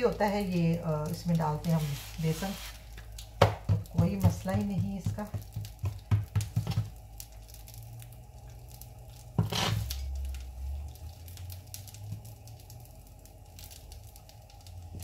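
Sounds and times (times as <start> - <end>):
hands patting dough: 1.1 - 7.4.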